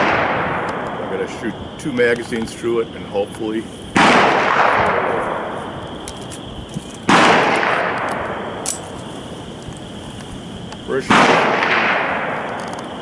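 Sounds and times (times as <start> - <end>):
pistol shots: 4.0 - 5.5, 7.0 - 8.9, 11.0 - 12.9.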